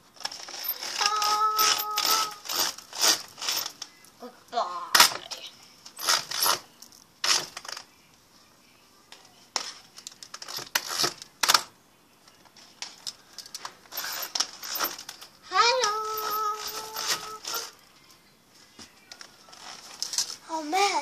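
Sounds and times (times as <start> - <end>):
bead chain rattling through pulley: 0.2 - 3.7, 6.0 - 6.6, 13.9 - 15.2, 16.0 - 17.8
roller blind shifting: 0.2 - 3.8, 5.9 - 7.8, 13.6 - 17.8.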